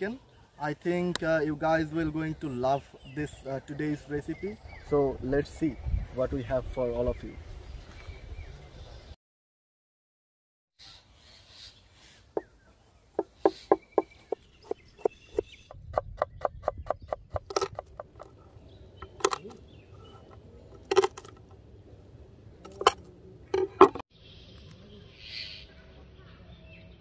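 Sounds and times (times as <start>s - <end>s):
knife chopping on wooden board: 13.2s - 18.3s.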